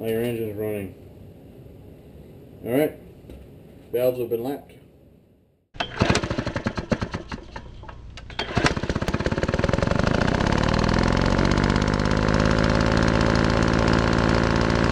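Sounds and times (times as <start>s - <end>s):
engine starting and running: 5.8s - 14.9s.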